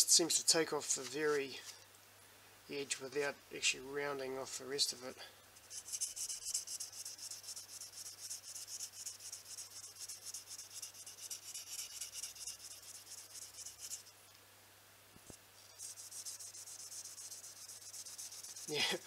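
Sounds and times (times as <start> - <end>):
knife blade scraping sandpaper: 5.6 - 14.1, 15.6 - 19.0.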